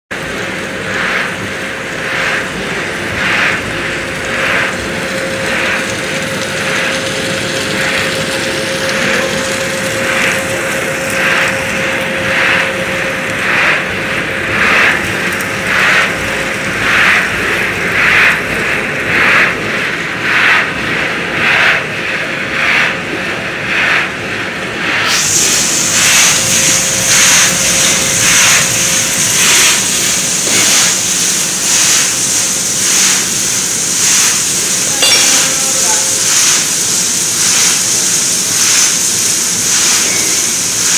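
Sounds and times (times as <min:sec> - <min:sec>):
machinery droning: 0:00.0 - 0:40.9
rhythmic swishing: 0:00.1 - 0:40.9
thin machine whine: 0:00.1 - 0:40.9.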